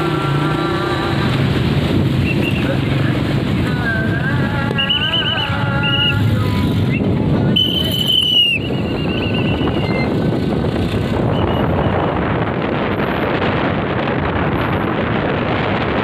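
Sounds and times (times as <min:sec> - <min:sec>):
car road noise: 0:00.0 - 0:16.0
wind on microphone: 0:00.0 - 0:16.0
whistle blast: 0:04.7 - 0:06.2, 0:06.9 - 0:10.1
warbling whistle: 0:07.6 - 0:10.0.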